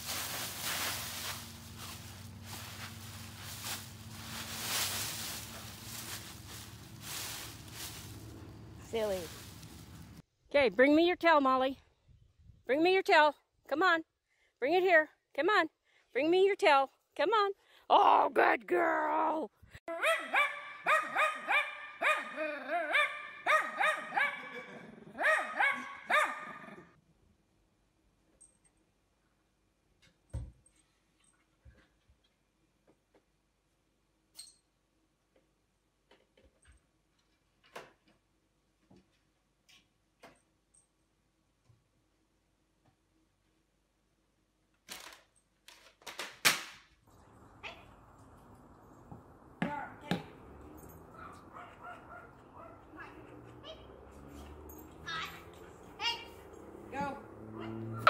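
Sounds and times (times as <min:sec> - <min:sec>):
dog yipping: 0:19.9 - 0:26.8, 0:50.8 - 0:53.9.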